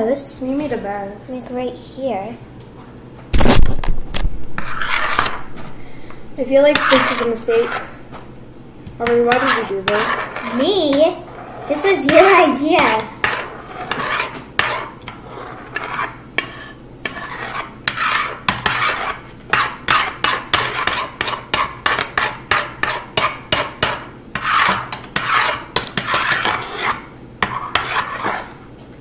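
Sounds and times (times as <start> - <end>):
metal spoons scraping on wooden board: 4.6 - 5.4, 6.7 - 7.9, 9.0 - 10.7, 11.3 - 28.5.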